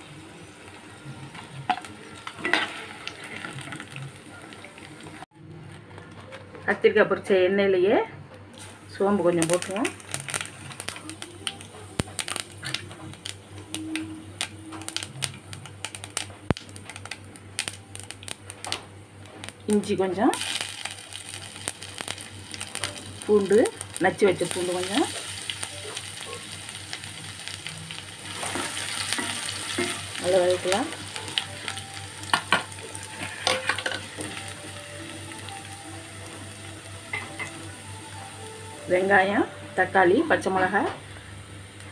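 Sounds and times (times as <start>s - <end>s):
seeds popping in hot oil: 8.6s - 39.3s.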